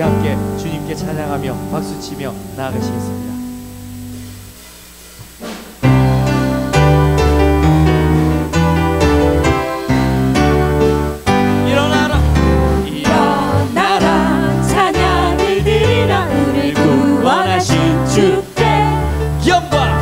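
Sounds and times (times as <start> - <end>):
instrumental accompaniment: 0.0 - 20.0
group singing together: 11.3 - 20.0.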